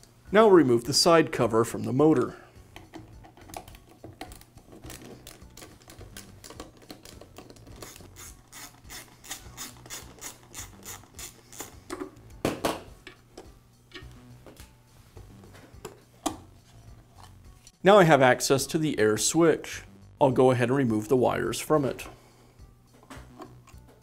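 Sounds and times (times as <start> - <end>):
screwdriver ratchet clicks: 5.4 - 11.8.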